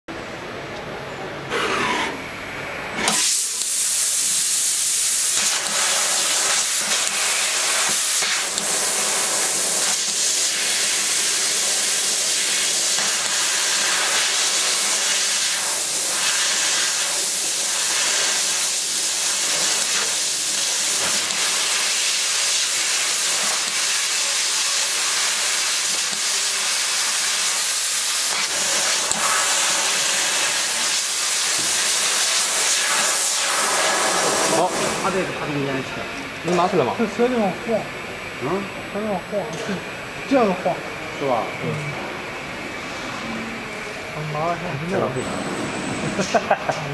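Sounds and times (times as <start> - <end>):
laser cutter gas jet hissing: 1.5 - 35.7, 43.7 - 46.9.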